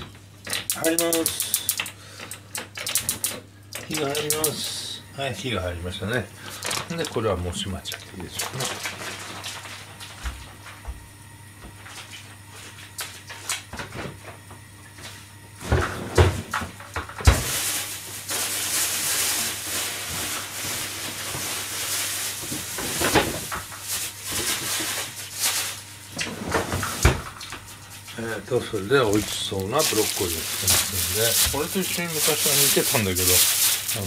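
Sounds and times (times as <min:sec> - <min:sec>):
pots and cupboard doors clanking: 0:15.6 - 0:17.5
steady rushing hiss: 0:29.0 - 0:34.0.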